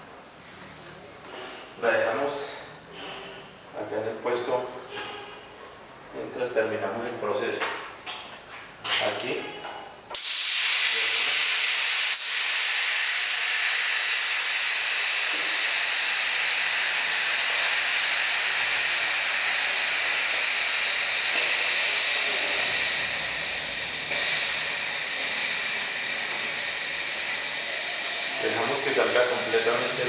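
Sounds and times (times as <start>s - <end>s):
compressed air hissing: 10.2s - 30.0s.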